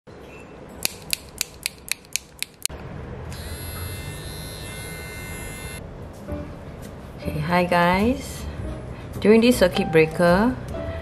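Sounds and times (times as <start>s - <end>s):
nail clipper snipping: 0.8s - 2.7s
electric nail grinder whining: 3.4s - 5.8s.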